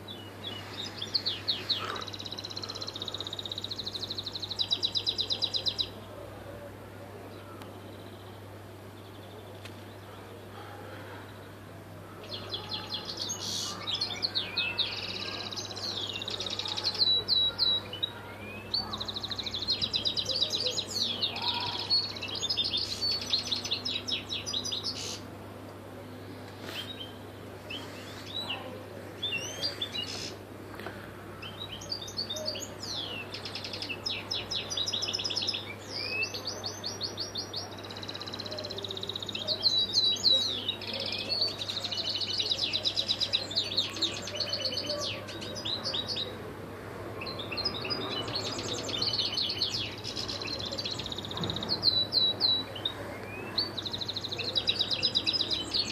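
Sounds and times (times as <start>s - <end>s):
goldfinch singing: 47.2s - 55.9s.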